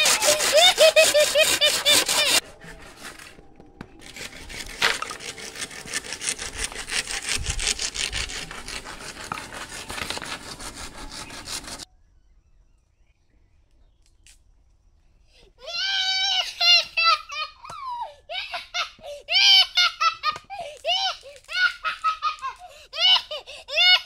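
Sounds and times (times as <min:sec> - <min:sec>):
hand saw cutting bamboo: 0:00.0 - 0:03.4, 0:04.0 - 0:11.9.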